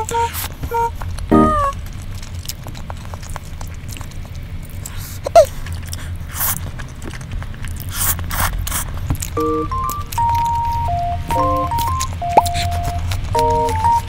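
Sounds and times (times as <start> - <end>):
chewing with wet mouth clicks: 0.1 - 14.0
noodles slurped: 2.0 - 9.4.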